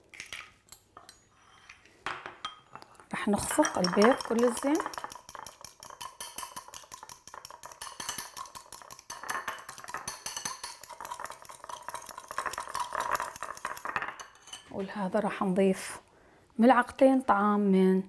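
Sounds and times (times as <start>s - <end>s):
fork clicking against glass bowl: 3.8s - 13.8s.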